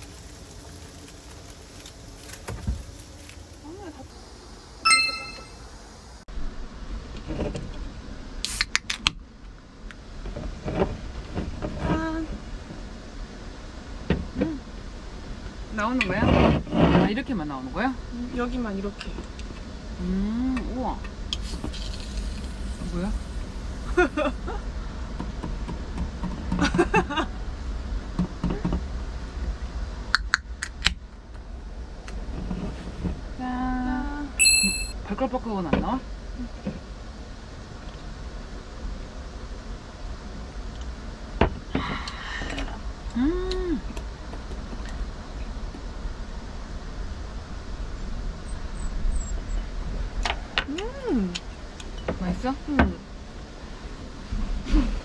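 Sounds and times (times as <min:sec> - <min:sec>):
beer can opening hiss: 0:08.4 - 0:09.0, 0:21.3 - 0:24.0
sharp can clicks: 0:08.4 - 0:09.1
low steady hum: 0:09.2 - 0:55.0.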